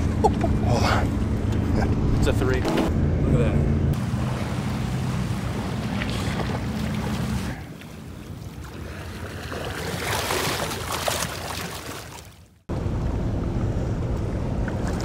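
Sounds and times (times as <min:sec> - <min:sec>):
waves splashing against seawall: 0:04.0 - 0:12.4.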